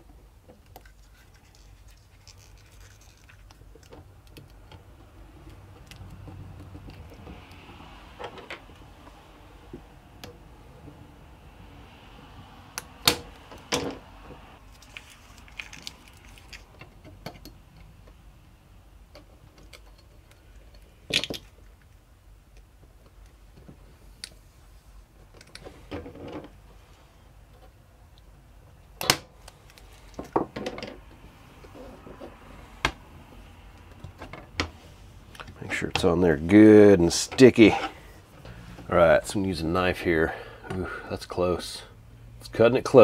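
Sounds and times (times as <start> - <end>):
tape rustling and rubbing: 0.6 - 7.6, 14.6 - 17.1.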